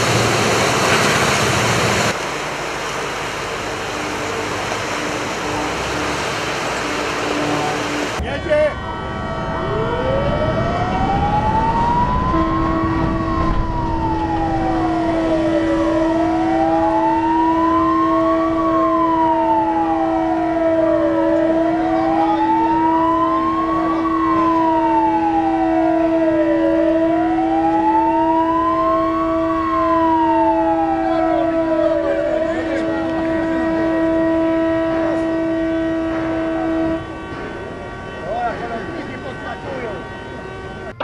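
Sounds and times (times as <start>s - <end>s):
low rush of water: 0.0s - 8.2s
steady tone: 3.0s - 32.6s
wailing siren: 3.8s - 41.0s.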